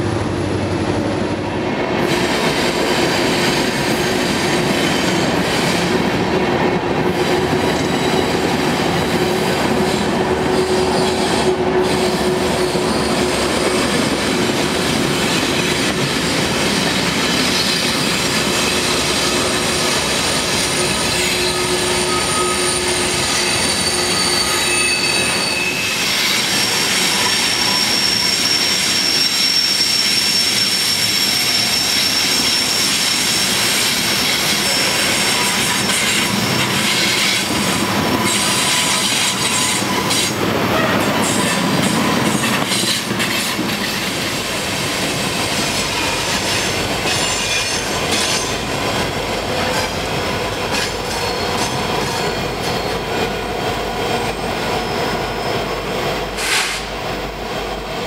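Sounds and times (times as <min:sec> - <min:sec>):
train wheels rumbling on rails: 0:00.0 - 0:58.0
wheel flanges squealing: 0:16.3 - 0:43.3.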